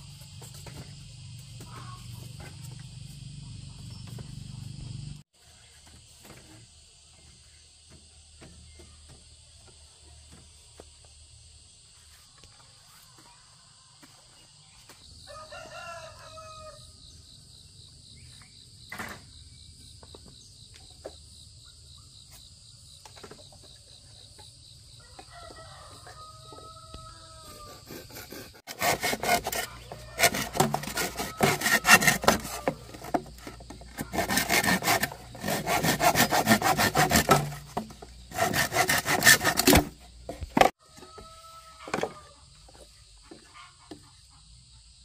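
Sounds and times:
rooster crowing: 0:15.2 - 0:17.0, 0:25.0 - 0:28.0, 0:29.5 - 0:32.8, 0:40.8 - 0:42.4.

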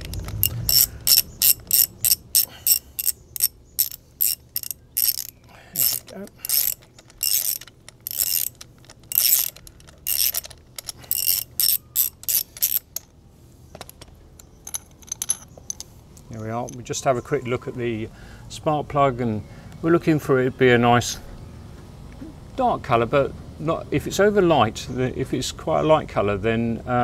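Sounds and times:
socket ratchet clicking: 0:00.0 - 0:13.1.

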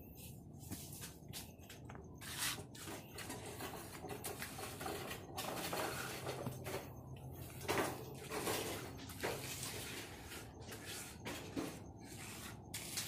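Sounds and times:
trowel scraping wet concrete: 0:02.2 - 0:06.5, 0:08.2 - 0:13.0.

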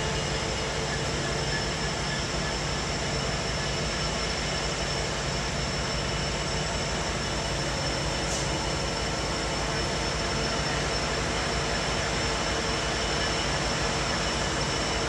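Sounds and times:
diesel locomotive droning: 0:00.0 - 0:15.0
steady high whine: 0:00.0 - 0:15.0.

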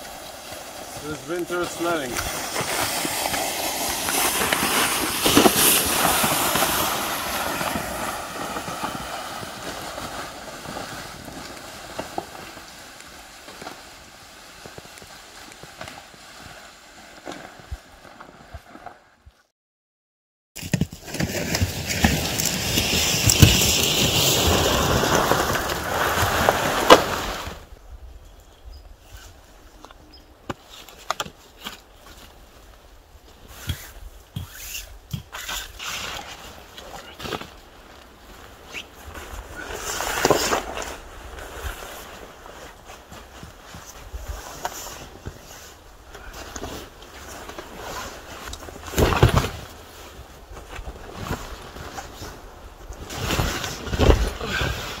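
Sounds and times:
sled scraping on snow: 0:00.0 - 0:19.0, 0:20.6 - 0:27.7, 0:33.4 - 0:55.0
footsteps crunching on snow: 0:00.0 - 0:19.1, 0:30.5 - 0:55.0.

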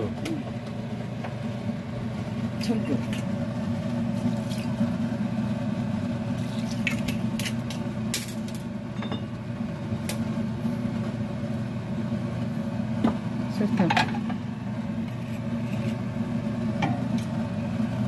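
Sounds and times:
low mechanical hum: 0:00.0 - 0:18.0
kitchenware clinking: 0:08.2 - 0:09.4.

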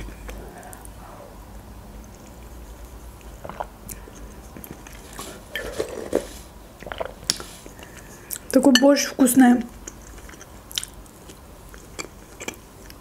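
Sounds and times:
wet mouth clicks: 0:02.0 - 0:05.0, 0:09.7 - 0:13.0
chewing and sipping: 0:02.0 - 0:08.6, 0:09.7 - 0:13.0.

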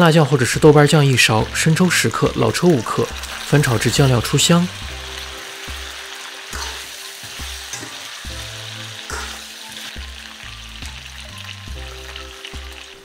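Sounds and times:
chicken sizzling in a wok: 0:00.0 - 0:13.0
background music with bass: 0:08.3 - 0:13.0.

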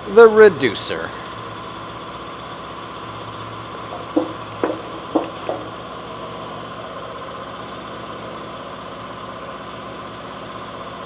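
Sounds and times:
motor humming: 0:01.3 - 0:07.5
short knock: 0:03.9 - 0:05.7.

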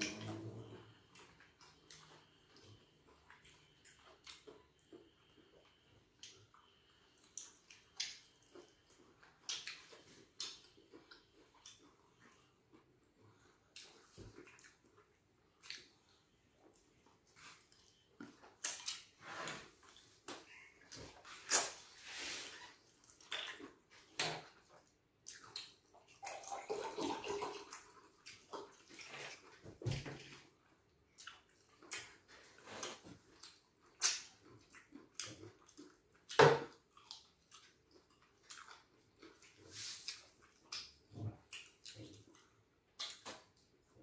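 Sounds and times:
wet chewing and swallowing: 0:00.0 - 0:43.9.

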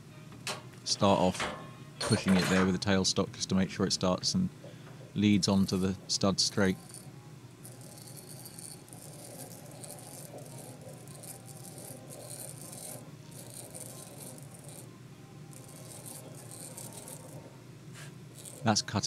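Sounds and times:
threading die scraping and rattling: 0:05.4 - 0:14.9, 0:15.5 - 0:17.5, 0:18.3 - 0:18.7.

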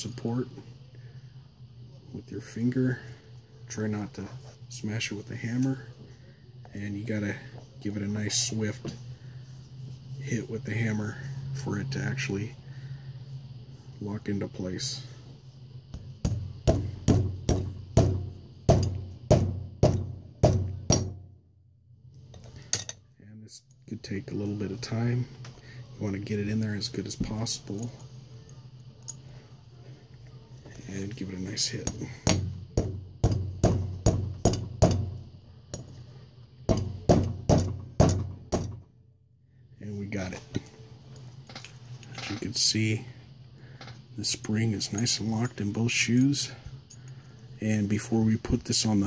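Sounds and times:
hammer striking metal: 0:16.2 - 0:21.2.

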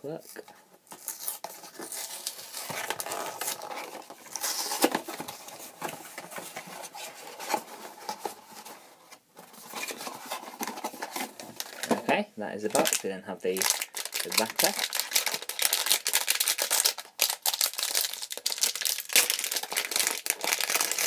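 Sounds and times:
cardboard box rustling and scraping: 0:01.0 - 0:11.8.

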